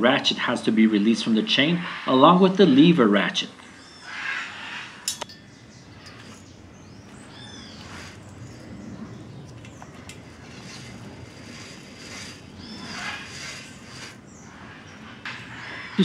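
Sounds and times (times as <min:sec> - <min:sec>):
faint bird chirps: 0:03.6 - 0:16.0.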